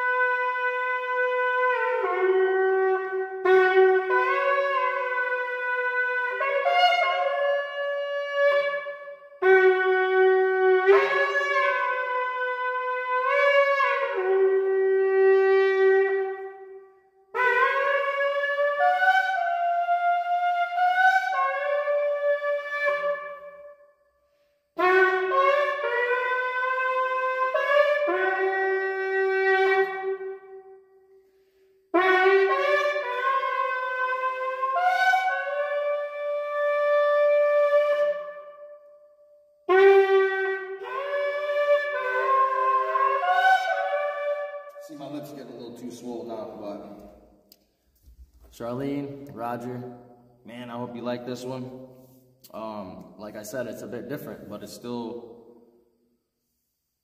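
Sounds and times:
shofar blasts: 0:00.0 - 0:23.9, 0:24.8 - 0:31.0, 0:31.9 - 0:39.0, 0:39.7 - 0:47.4.

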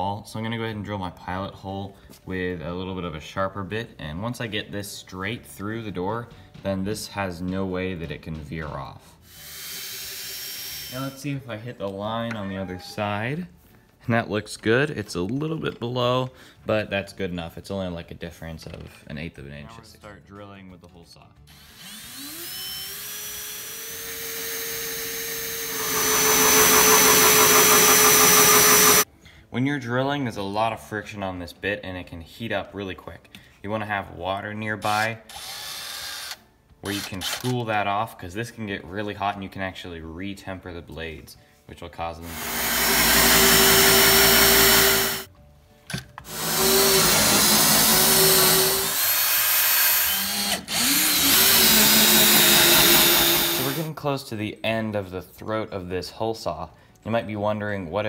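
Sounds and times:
cordless drill motor whine: 0:21.6 - 0:29.0, 0:42.4 - 0:45.2, 0:46.3 - 0:53.8
hole saw cutting into wood: 0:21.9 - 0:29.0, 0:42.3 - 0:45.3, 0:46.3 - 0:53.9.

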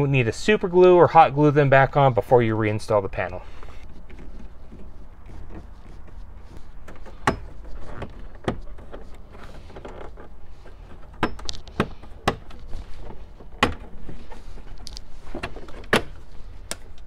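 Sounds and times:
plastic panel creaking: 0:03.7 - 0:17.0.

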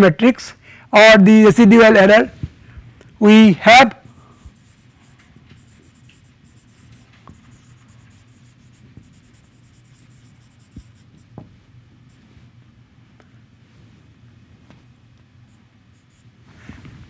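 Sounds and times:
marker scratching on whiteboard: 0:04.3 - 0:12.3, 0:15.5 - 0:16.4
marker tip tapping board: 0:08.9 - 0:11.5.

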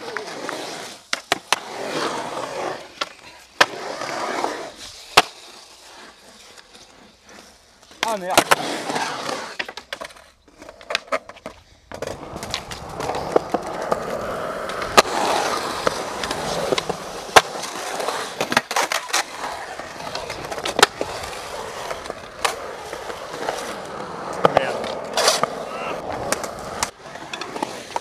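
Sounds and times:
skateboard wheels rolling on concrete: 0:00.0 - 0:28.0
skateboard clacking on concrete: 0:07.9 - 0:28.0.

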